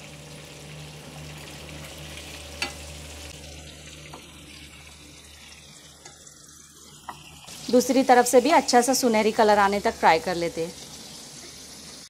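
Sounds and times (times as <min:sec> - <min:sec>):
fish sizzling in hot oil: 0:00.0 - 0:12.0.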